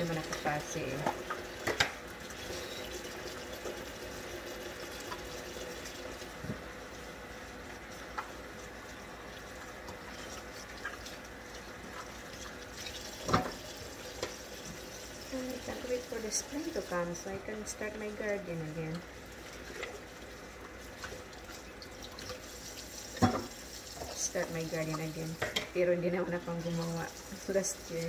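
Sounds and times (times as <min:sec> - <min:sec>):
tap running into sink: 0:13.2 - 0:13.6, 0:23.2 - 0:23.6.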